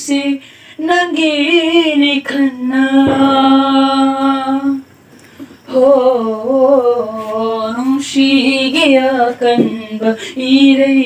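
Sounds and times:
person singing unaccompanied: 0:00.0 - 0:04.9, 0:05.7 - 0:11.0.

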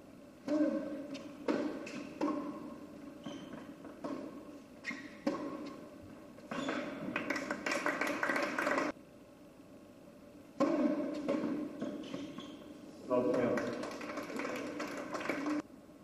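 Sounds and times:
tennis ball hit by rackets: 0:00.4 - 0:05.9, 0:10.6 - 0:12.5
tennis ball bouncing on court: 0:00.4 - 0:07.7, 0:10.6 - 0:12.6
crowd applauding: 0:07.2 - 0:08.9, 0:13.2 - 0:15.6.

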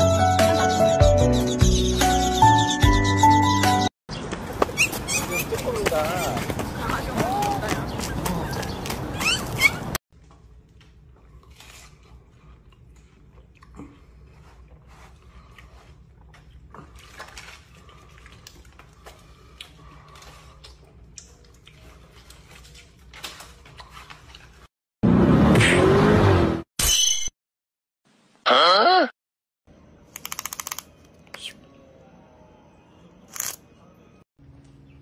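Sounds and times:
deer chewing watermelon: 0:10.5 - 0:24.6.

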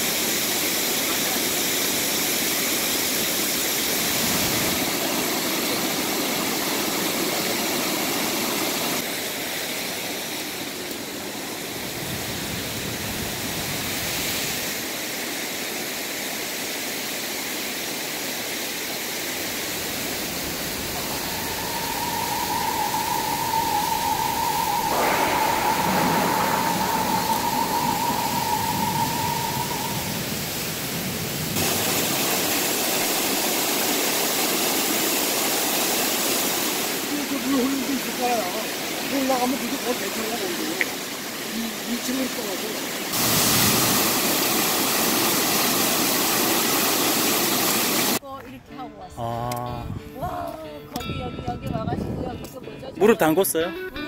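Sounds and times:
water rushing: 0:00.0 - 0:48.2
steady high tone: 0:20.0 - 0:30.9.

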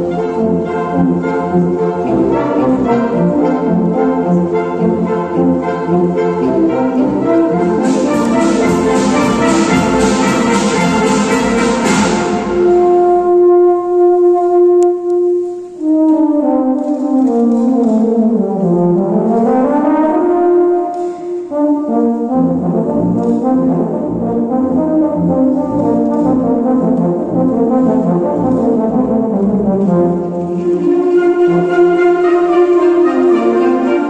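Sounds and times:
wind band playing: 0:00.0 - 0:34.0
euphonium solo: 0:29.1 - 0:34.0.

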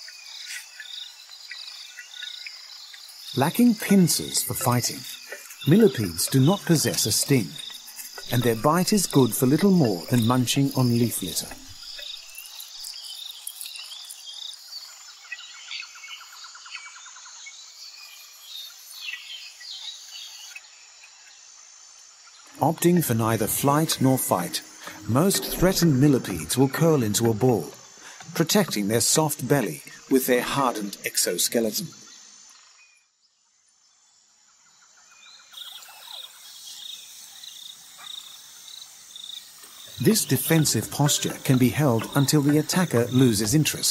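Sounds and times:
steady high hiss: 0:00.0 - 0:16.4, 0:17.6 - 0:32.7, 0:35.6 - 0:43.9
faint chirps: 0:00.0 - 0:21.3, 0:22.2 - 0:33.0
insects trilling: 0:00.0 - 0:43.9.

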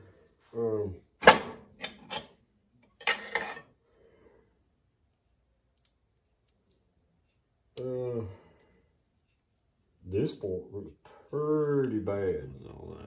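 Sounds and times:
metal parts clinking: 0:02.9 - 0:03.6
metal scraping: 0:03.0 - 0:03.7.

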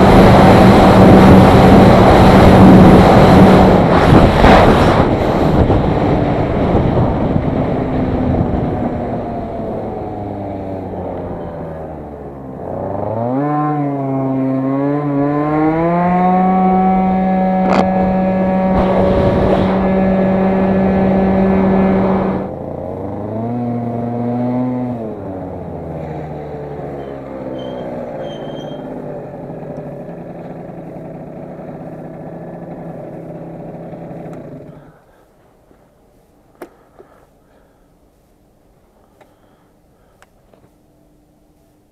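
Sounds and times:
rush of noise: 0:00.0 - 0:13.1, 0:17.2 - 0:23.2
scooter engine accelerating: 0:00.0 - 0:35.0.

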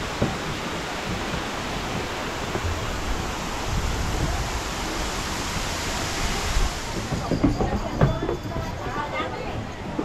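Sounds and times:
stream and waterfall rushing: 0:00.0 - 0:07.6.

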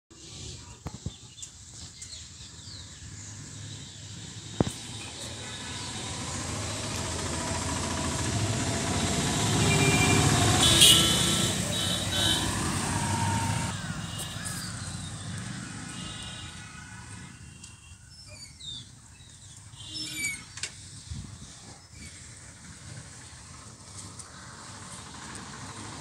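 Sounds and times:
motorcycle and van engines passing: 0:02.4 - 0:17.5, 0:22.0 - 0:26.0.

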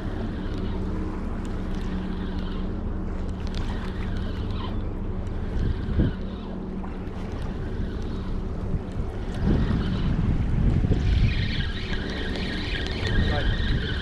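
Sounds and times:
ferry engine drone: 0:00.0 - 0:14.0
wind buffeting microphone: 0:05.4 - 0:14.0.

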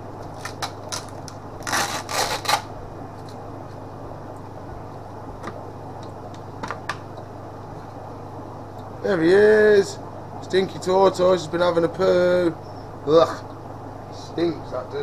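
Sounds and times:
plastic crackles and snaps: 0:00.2 - 0:03.4.

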